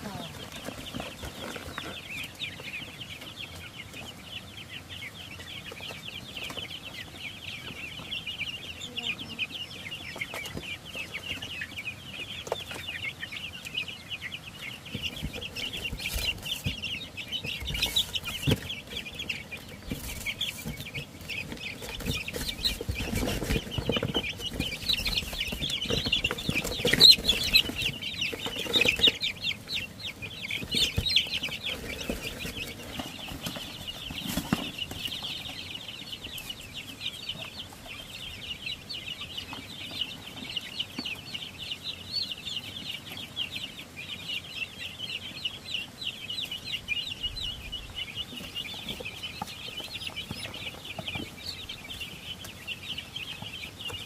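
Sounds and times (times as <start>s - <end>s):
wing flapping and scuffling: 0.0s - 4.4s, 14.4s - 38.0s
chicks peeping: 0.0s - 54.0s.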